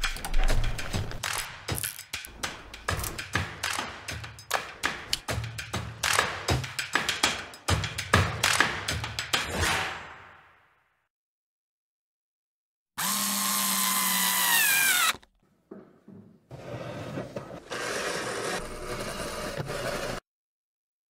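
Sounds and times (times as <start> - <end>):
cordless drill whirring: 13.0 - 15.3
small knocks: 15.7 - 16.5.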